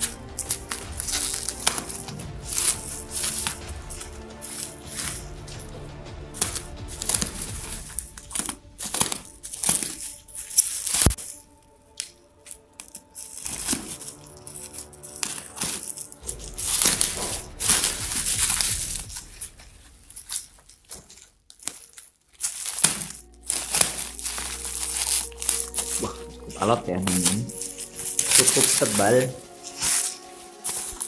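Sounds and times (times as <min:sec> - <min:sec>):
background music: 0:00.0 - 0:31.0
bubble wrap crinkling: 0:00.0 - 0:31.0.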